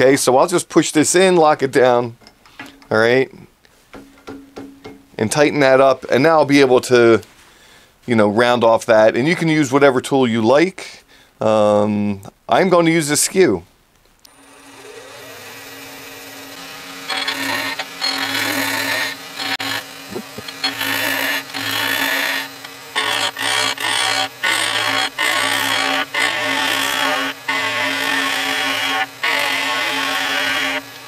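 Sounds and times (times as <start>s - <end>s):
chisel cutting wood: 14.3s - 31.0s
lathe motor hum: 14.3s - 31.0s.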